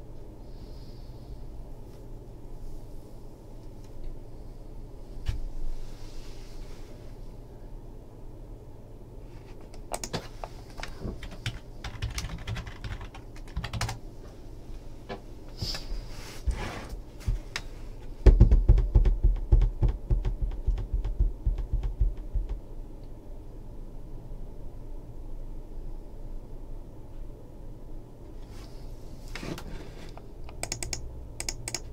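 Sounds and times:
fingers drumming on tabletop: 0:18.3 - 0:22.6.

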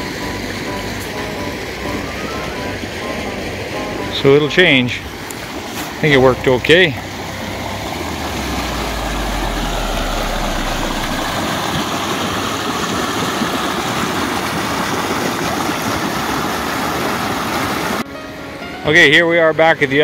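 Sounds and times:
low rumble: 0:00.0 - 0:12.0
water rushing through a channel: 0:00.0 - 0:18.1.

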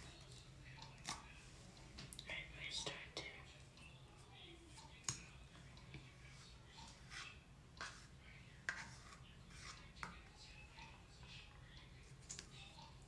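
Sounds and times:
makeup tools rubbing and scratching: 0:06.1 - 0:10.2.

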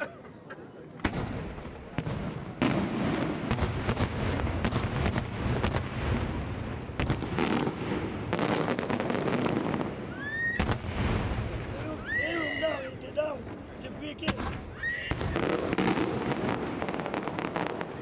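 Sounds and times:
fireworks bursts and bangs: 0:00.9 - 0:12.4, 0:13.4 - 0:18.0
rising firework whistle: 0:10.1 - 0:10.8.

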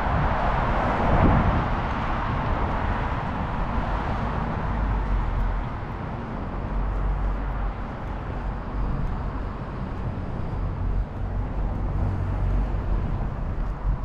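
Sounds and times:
road traffic rumble: 0:00.0 - 0:14.0.

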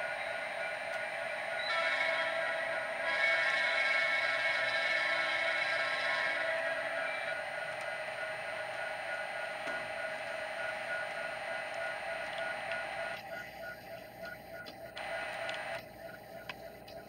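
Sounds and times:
model train wheel noise: 0:00.0 - 0:13.3.

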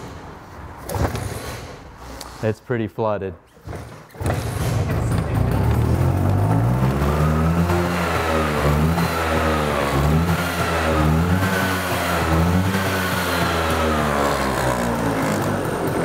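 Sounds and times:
scooter engine revving: 0:04.2 - 0:16.0.

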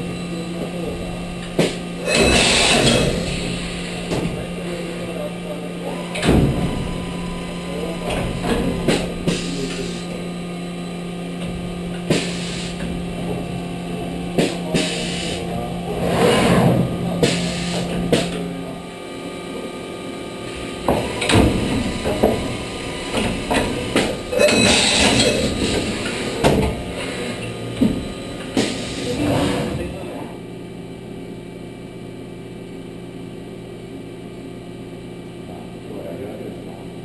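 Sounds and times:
machine hissing: 0:00.0 - 0:18.8, 0:20.3 - 0:29.9
machine drive hum: 0:00.0 - 0:37.0
mechanical clunks and knocks: 0:00.8 - 0:04.6, 0:05.9 - 0:10.2, 0:11.3 - 0:18.7, 0:20.5 - 0:30.0.

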